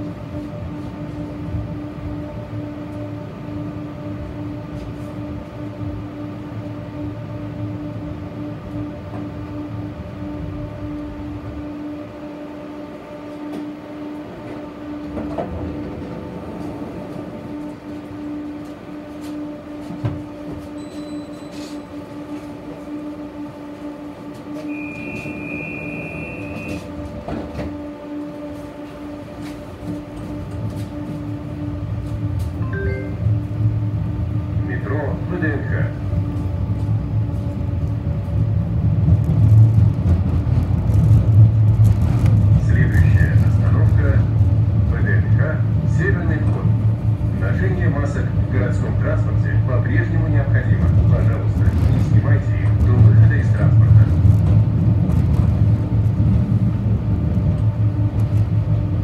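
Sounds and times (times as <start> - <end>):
tram electric hum: 0.0 - 59.0
high steady beep: 20.8 - 21.6, 32.6 - 33.4
wheels rumbling: 25.0 - 49.6, 50.2 - 59.0.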